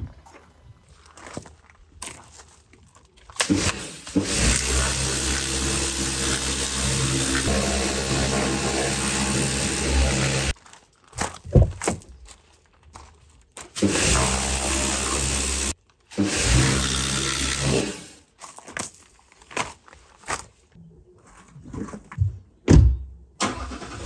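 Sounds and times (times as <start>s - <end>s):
power tool motor running: 3.4s - 10.6s, 13.8s - 18.2s.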